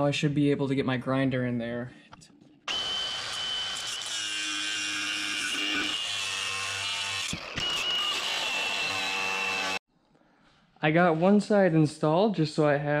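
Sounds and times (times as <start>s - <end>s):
grinder grinding metal: 2.7s - 9.8s.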